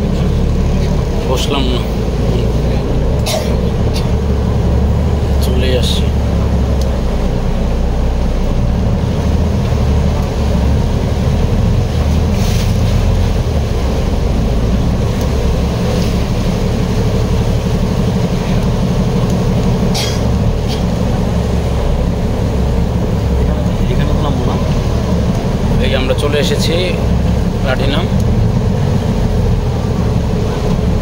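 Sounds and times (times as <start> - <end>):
boat diesel engine rumble: 0.0 - 31.0.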